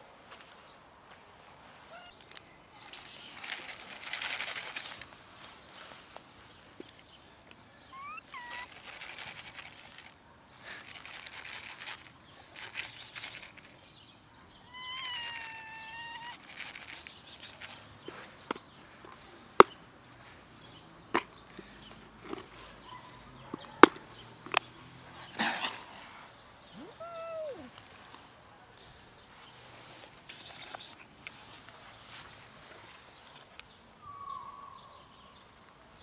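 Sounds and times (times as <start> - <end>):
cats meowing: 1.9 - 2.1, 7.9 - 8.8, 14.6 - 16.4, 26.8 - 27.8.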